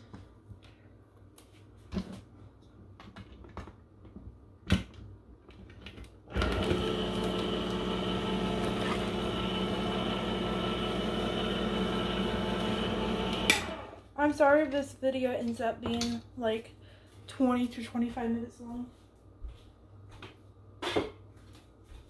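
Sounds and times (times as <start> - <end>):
can opener motor humming: 6.3 - 14.0.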